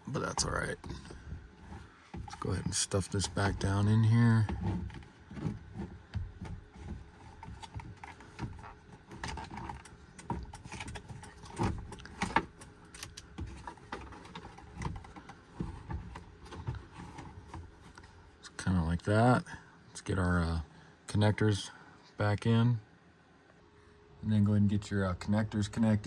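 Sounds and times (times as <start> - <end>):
hard plastic clicking and knocking: 4.4 - 18.1.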